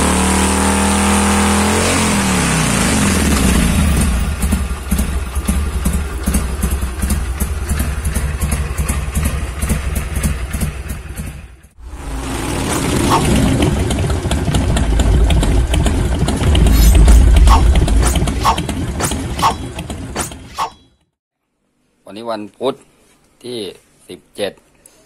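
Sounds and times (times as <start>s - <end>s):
motorcycle engine idling: 3.1s - 20.2s
intro music: 11.8s - 19.8s.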